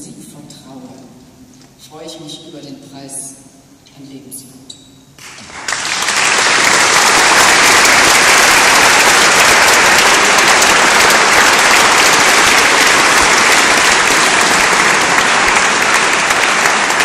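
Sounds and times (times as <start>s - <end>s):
audience applauding: 5.2s - 17.0s.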